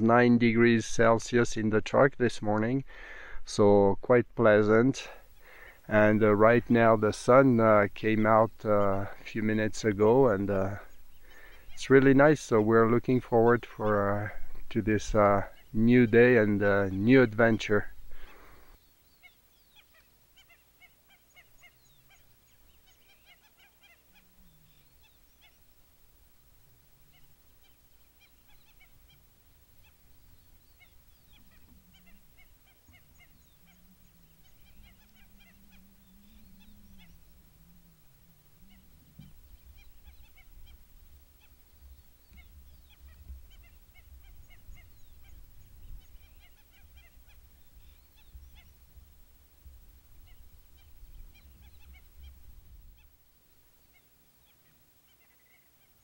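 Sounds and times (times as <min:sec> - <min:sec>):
flamingos calling: 0:05.0 - 0:25.8, 0:27.0 - 0:53.2, 0:53.9 - 0:56.0.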